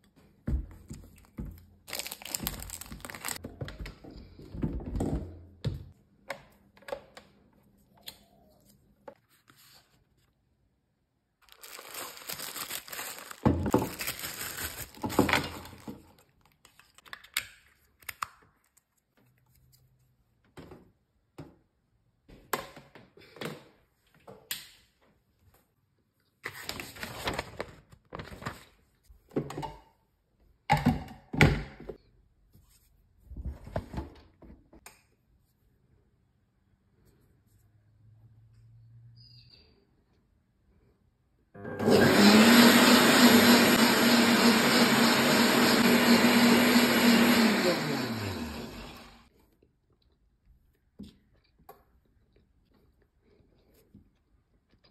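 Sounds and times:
crinkling and rustling: 0.0 - 5.2, 11.4 - 20.9, 25.0 - 29.4.

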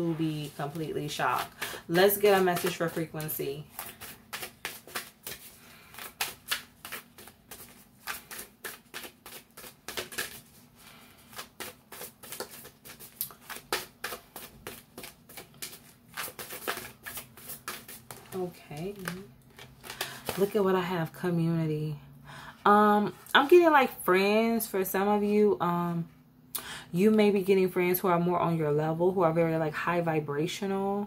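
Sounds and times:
cards being shuffled: 0.4 - 20.5.

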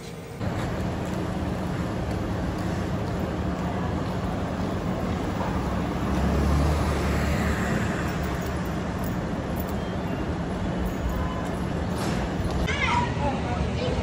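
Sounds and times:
city street traffic: 0.0 - 14.0
low vehicle rumble: 0.4 - 12.7.

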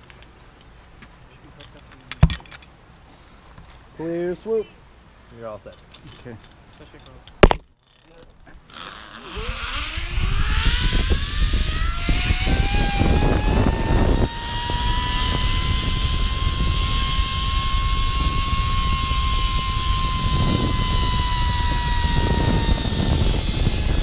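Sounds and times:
zip line pulleys whining on cable: 8.7 - 24.0
wind rushing over microphone: 9.2 - 24.0.

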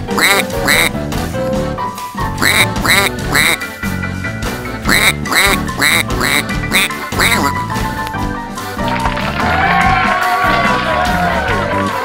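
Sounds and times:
squeaky cartoon duck quacks: 0.0 - 0.9, 2.4 - 3.6, 4.9 - 7.6
background music: 0.0 - 12.0.

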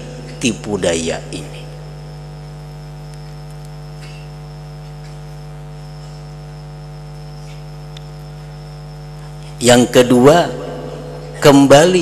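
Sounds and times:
electrical mains hum: 0.0 - 12.0
faint clicks: 3.0 - 3.8.

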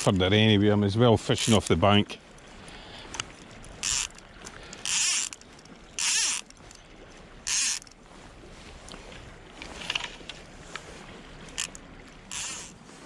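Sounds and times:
river flowing: 0.0 - 13.0
fly reel ratchet buzzing: 3.8 - 4.2, 4.8 - 5.4, 6.0 - 6.5, 7.5 - 7.9, 11.6 - 12.8.

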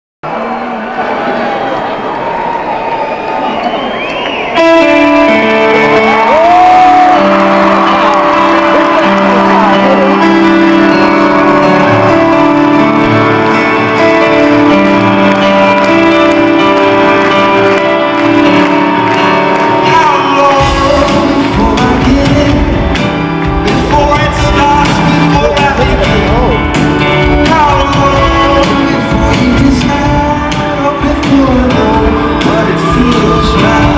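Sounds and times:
crowd shouts and whoops: 0.3 - 22.1
keyboard chords: 4.4 - 33.9
heavy drum and bass beat: 20.6 - 33.9.

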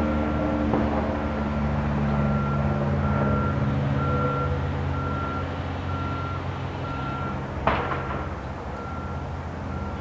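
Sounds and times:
propeller plane droning overhead: 0.0 - 10.0
reversing alarm beeps: 2.1 - 7.4, 8.0 - 10.0.

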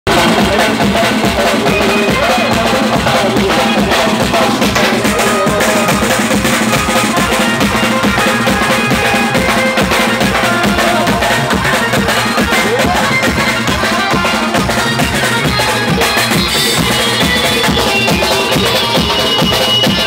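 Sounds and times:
drum and percussion beat: 0.1 - 20.0
sustained keyboard melody: 0.2 - 20.0.

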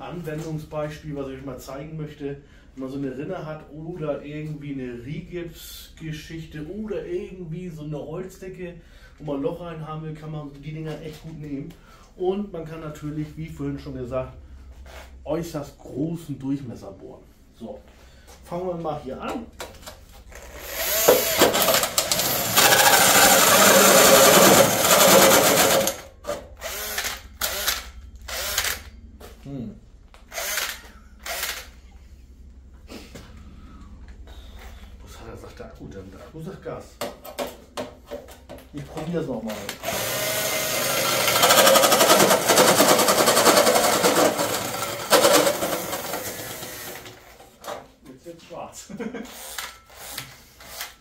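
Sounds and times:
drill hole saw grinding metal: 20.4 - 26.0, 26.6 - 28.9, 30.3 - 31.7, 39.5 - 47.2.

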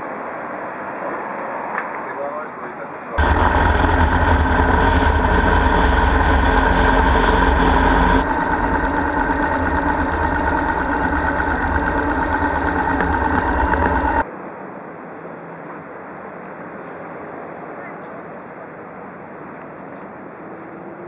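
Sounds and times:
motorcycle engine running: 3.2 - 14.2
wind rumble: 3.2 - 14.2.

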